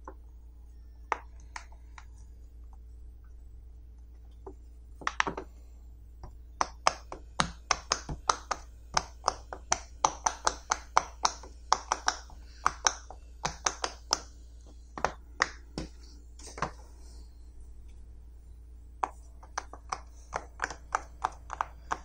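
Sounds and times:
pop it toy popping: 6.6 - 14.3.

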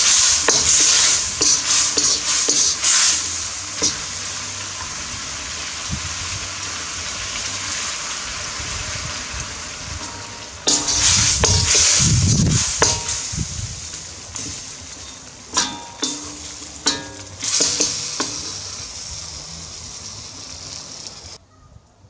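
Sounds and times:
metal spoon clinking on wok: 0.0 - 5.1, 10.0 - 18.8
stir fry sizzling in wok: 0.0 - 21.4.

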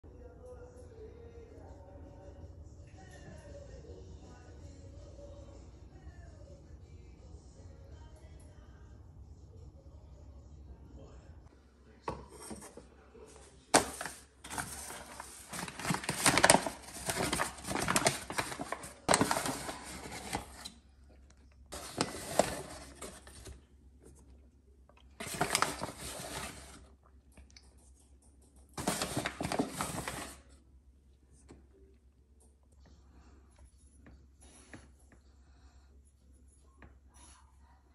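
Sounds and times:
flour bags crinkling: 13.7 - 20.8, 21.7 - 23.6, 25.1 - 26.9, 28.8 - 30.5.

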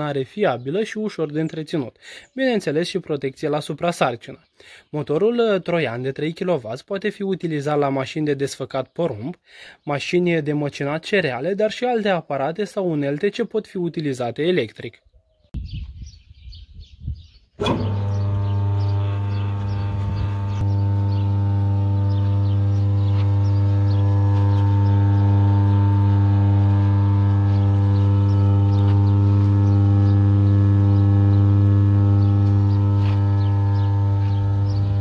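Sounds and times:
motor switch click: 17.6 - 26.2
electric motor humming: 17.6 - 35.0.

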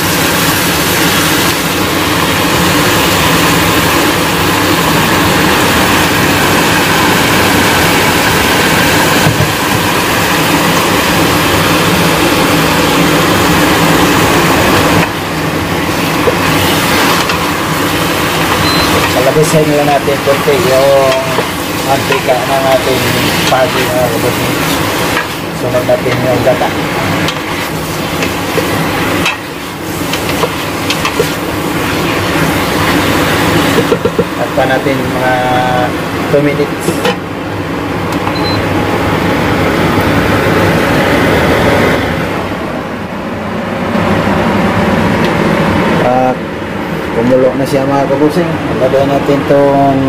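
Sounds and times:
fish cooking in a pan: 0.0 - 25.7, 26.8 - 34.4
food sizzling in hot oil: 0.0 - 35.3
low hum from stovetop: 0.0 - 50.0.

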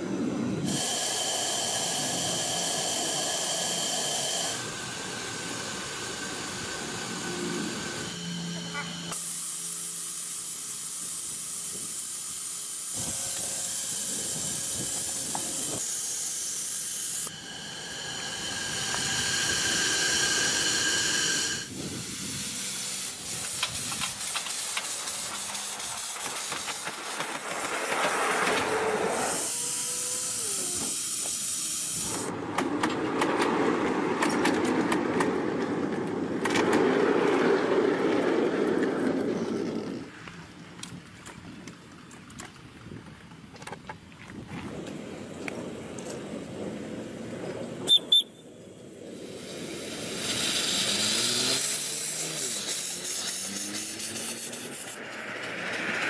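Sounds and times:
steam hissing: 0.0 - 32.4, 46.4 - 56.0
rapid clicking and rattling: 23.3 - 28.7.

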